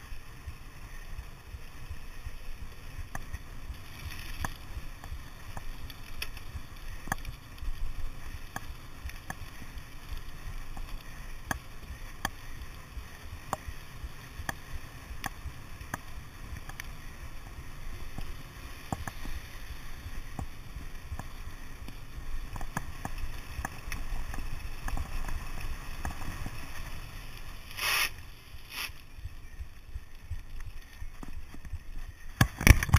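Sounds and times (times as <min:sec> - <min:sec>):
tyres rolling on tarmac: 0:00.0 - 0:32.1
bike rattling ticks: 0:00.0 - 0:32.9
short loud hiss: 0:27.7 - 0:29.0.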